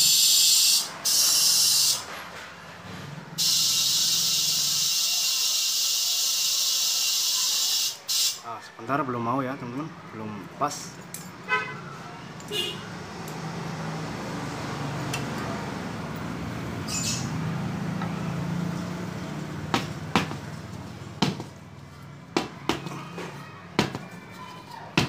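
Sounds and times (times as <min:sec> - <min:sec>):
air hissing into tyre: 0:00.0 - 0:02.6, 0:03.3 - 0:08.4
knocks of wheel handling: 0:19.7 - 0:20.5, 0:21.2 - 0:21.6.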